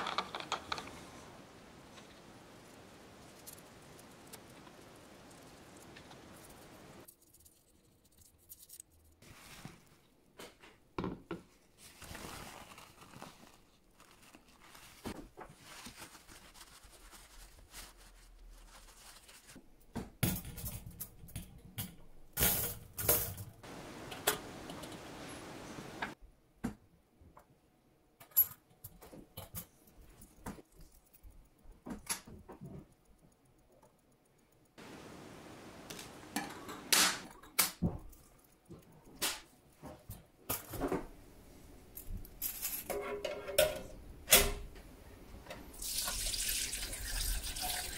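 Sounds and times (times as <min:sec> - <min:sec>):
soft brushing noise: 0:09.2 - 0:10.1
metal parts clinking: 0:42.0 - 0:43.6.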